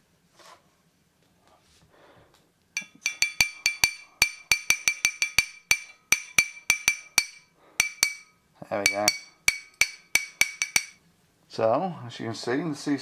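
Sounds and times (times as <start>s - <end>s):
metal tool tapping on glass: 2.8s - 11.0s.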